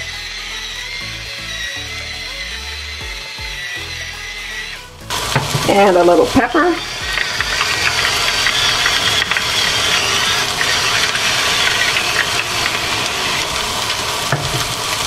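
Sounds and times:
vegetables sizzling in a frying pan: 0:05.1 - 0:15.0.

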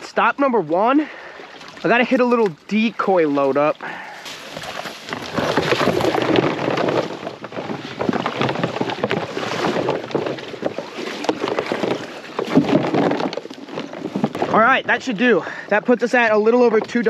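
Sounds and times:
decoys rustling and knocking: 0:04.3 - 0:15.2.

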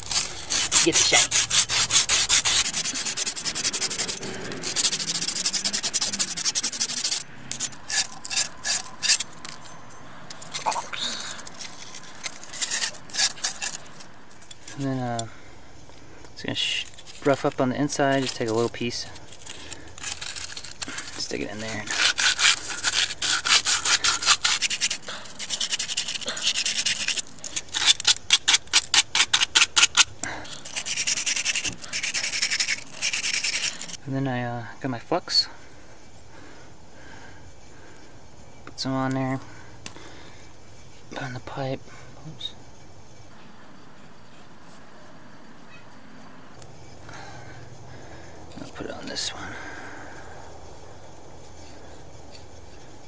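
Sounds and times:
abrasive cloth rubbing copper pipe: 0:00.0 - 0:09.6
cloth scrubbing copper fitting: 0:00.0 - 0:09.6, 0:16.9 - 0:34.0.

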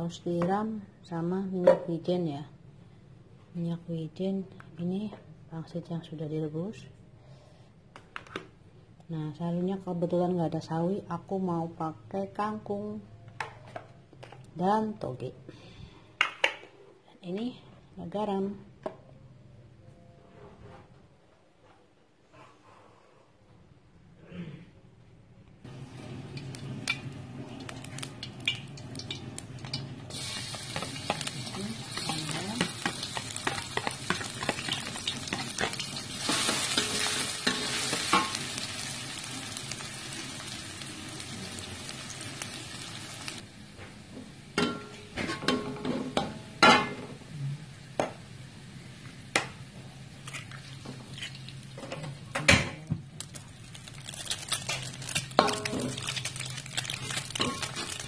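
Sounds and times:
garlic sizzling in hot oil: 0:25.7 - 0:43.5, 0:53.2 - 0:58.0
metal spatula scraping a wok: 0:30.4 - 0:38.5.

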